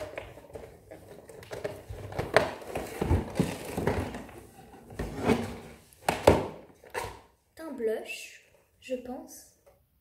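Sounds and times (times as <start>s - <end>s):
cardboard rustling: 0.0s - 7.1s.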